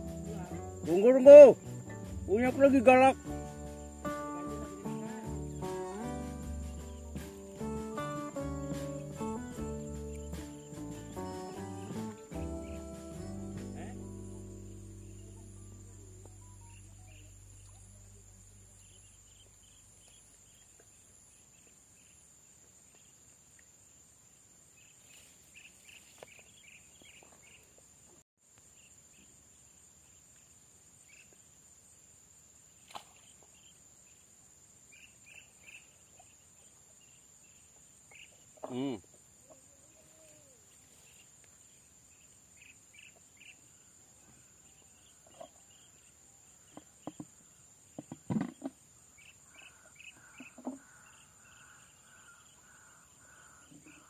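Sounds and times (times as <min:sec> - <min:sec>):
background music: 0:00.0 - 0:17.5
chirping trills: 0:00.0 - 0:19.5.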